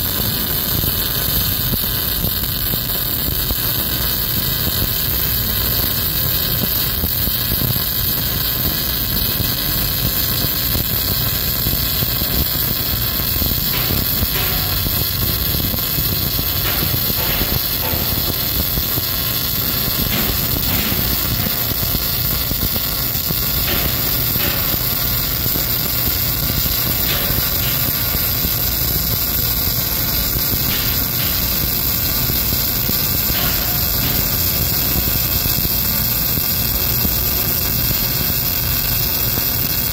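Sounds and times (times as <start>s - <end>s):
welding arc crackling hiss: 0.0s - 39.9s.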